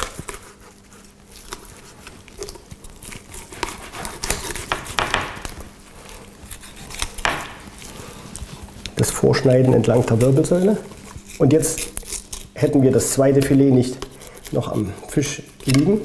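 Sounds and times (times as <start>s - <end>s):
knife scraping fish scales: 3.0s - 8.1s, 9.8s - 16.0s.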